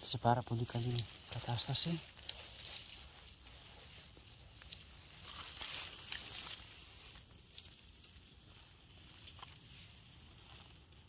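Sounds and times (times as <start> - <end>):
dry leaves rustling and crackling: 0.0 - 11.0
small twigs snapping: 0.7 - 8.2.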